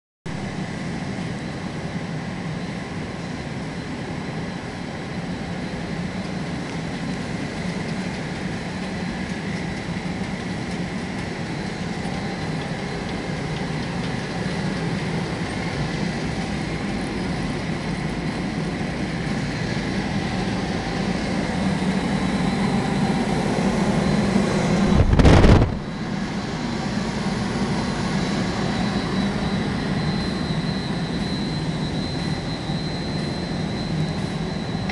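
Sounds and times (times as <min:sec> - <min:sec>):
industrial machinery humming: 0:00.3 - 0:34.9
faint high whine: 0:10.4 - 0:34.9
loud low thump: 0:24.9 - 0:25.8.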